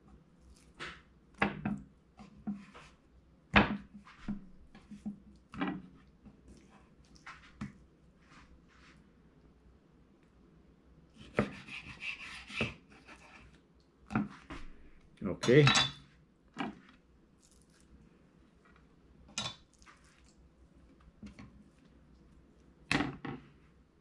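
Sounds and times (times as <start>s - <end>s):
knife cutting fish: 11.2s - 13.5s.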